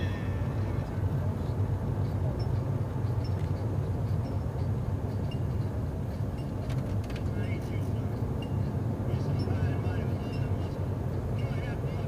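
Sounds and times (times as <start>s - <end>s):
car engine and road rumble: 0.0s - 12.0s.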